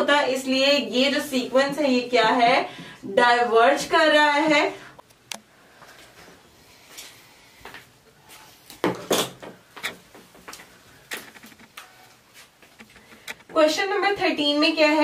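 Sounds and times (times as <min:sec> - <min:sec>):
footsteps: 0:05.8 - 0:13.6
faint rustling: 0:09.6 - 0:13.7.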